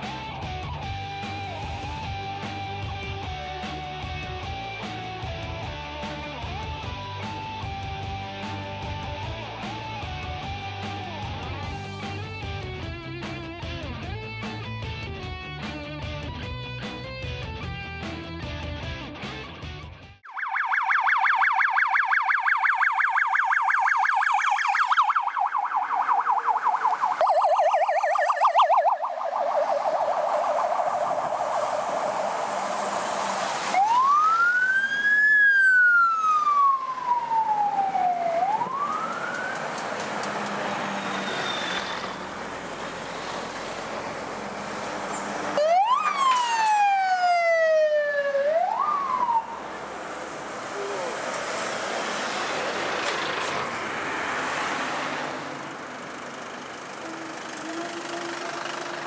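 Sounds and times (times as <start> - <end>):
police siren wail: 0.0 - 12.8, 20.2 - 59.0
police siren yelp: 0.6 - 11.8, 20.2 - 42.4, 43.8 - 53.8, 56.8 - 59.0.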